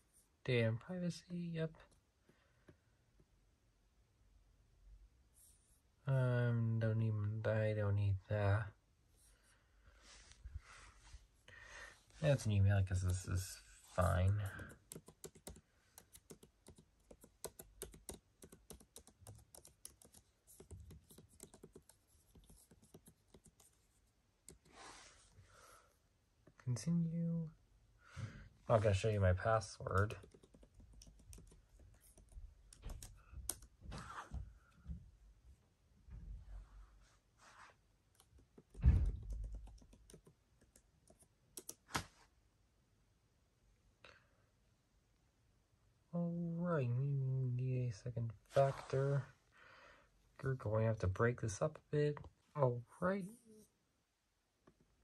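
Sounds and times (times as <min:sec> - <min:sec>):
faint laptop keyboard typing: 0:14.1 - 0:24.8, 0:29.8 - 0:33.8, 0:38.1 - 0:42.0.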